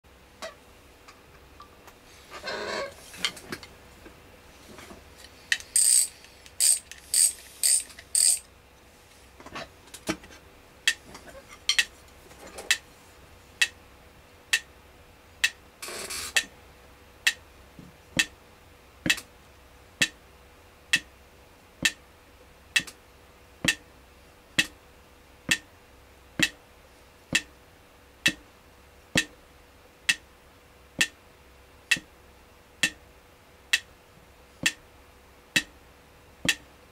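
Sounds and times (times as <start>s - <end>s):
stick tapping a pad: 16.3s - 16.5s, 18.2s - 18.4s, 19.0s - 19.3s, 20.9s - 21.1s, 21.8s - 22.0s, 22.8s - 23.0s, 23.6s - 23.8s, 24.6s - 24.8s, 25.5s - 25.7s, 26.4s - 26.6s, 27.3s - 27.5s, 28.2s - 28.4s, 29.2s - 29.4s, 31.0s - 31.2s, 31.9s - 32.1s, 32.8s - 33.0s, 34.6s - 34.8s, 35.6s - 35.8s, 36.4s - 36.7s.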